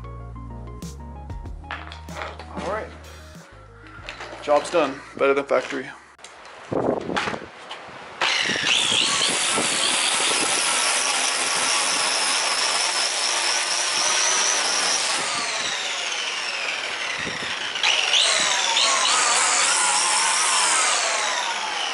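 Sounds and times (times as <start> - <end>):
electric string trimmer whining: 3.9 - 5.0, 8.1 - 21.9.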